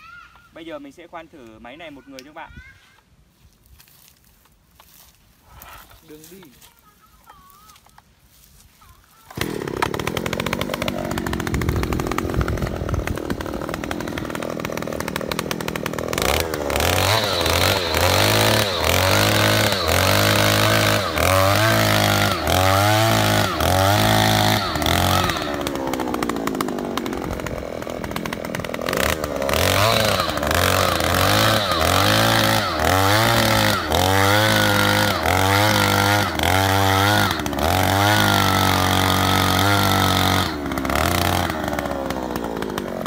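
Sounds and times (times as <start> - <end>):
earth auger engine drilling: 9.2 - 43.0.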